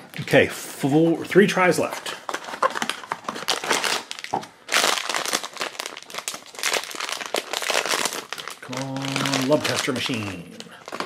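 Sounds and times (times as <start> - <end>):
foil pouch crinkling: 2.3 - 11.0.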